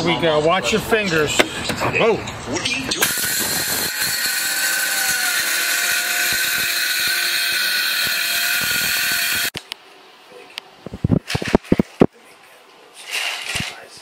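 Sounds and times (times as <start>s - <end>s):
circular saw cutting board: 3.0s - 9.6s.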